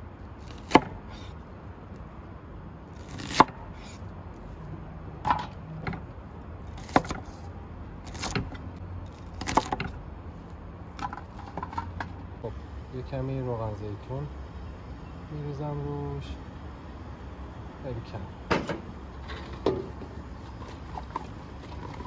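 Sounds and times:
knife chopping on wooden board: 0.6 - 1.0, 6.8 - 7.3.

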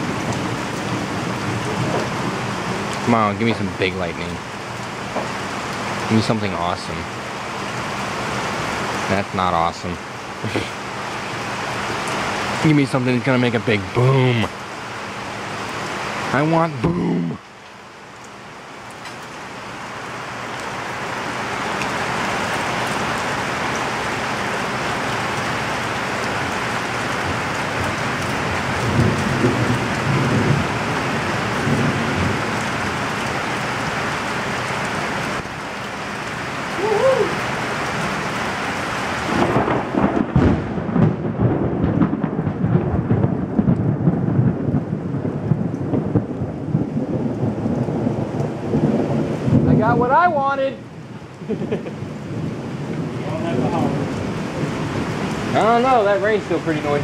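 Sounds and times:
thunder rumbling: 0.0 - 12.6, 24.6 - 34.0, 39.2 - 57.0
heavy rain pouring: 0.0 - 57.0
thunder boom: 39.3 - 50.0.

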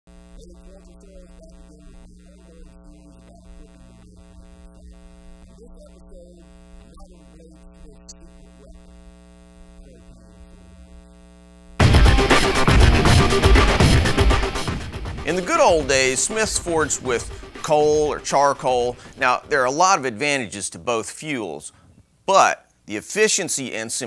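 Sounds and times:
electrical mains hum: 0.1 - 11.8
loud intro music: 11.8 - 19.8.

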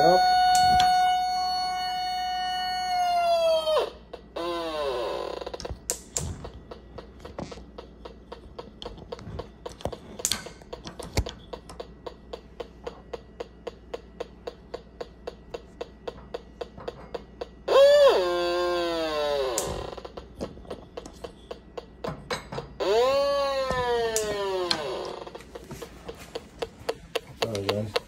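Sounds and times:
gas leak detector ticking: 0.0 - 3.2, 3.8 - 28.0
loud electronic alarm tone: 0.0 - 5.8, 15.0 - 21.5, 22.7 - 26.9.

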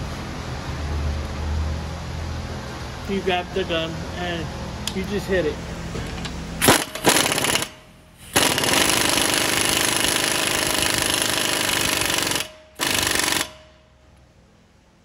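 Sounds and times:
impact wrench hammering: 6.6 - 13.9.

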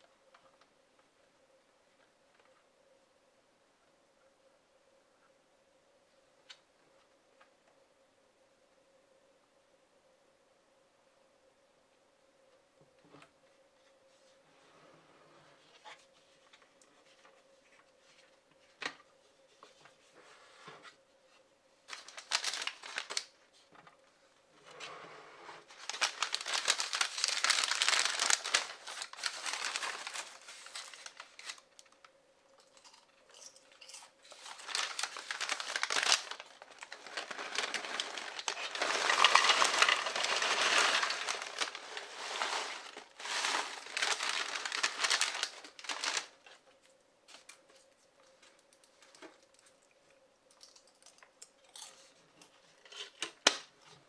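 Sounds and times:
paper bag crinkling: 21.9 - 23.4, 25.7 - 32.0, 34.2 - 46.6.

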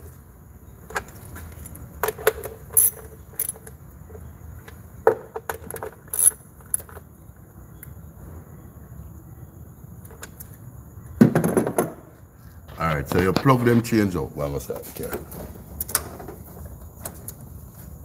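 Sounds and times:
socket wrench clinking on bolts: 0.9 - 3.8, 5.3 - 7.0.

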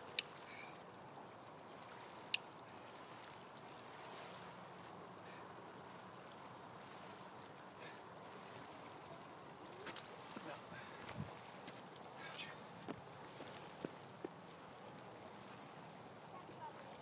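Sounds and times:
water lapping against rocks: 0.0 - 17.0.

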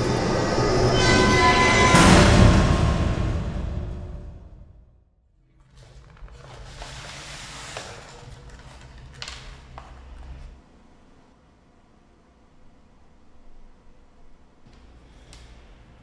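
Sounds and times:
music: 0.0 - 5.0
soft rustling: 5.6 - 10.6.

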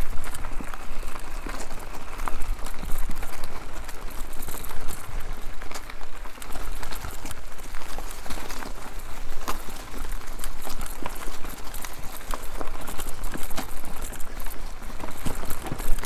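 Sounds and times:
bike rattling: 0.0 - 16.0
bike tyres rumbling over ground: 0.0 - 16.0.

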